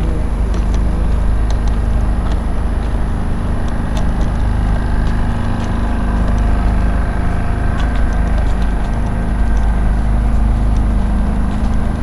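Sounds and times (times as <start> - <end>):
city background rumble: 0.0 - 12.0
footsteps walking: 0.0 - 12.0.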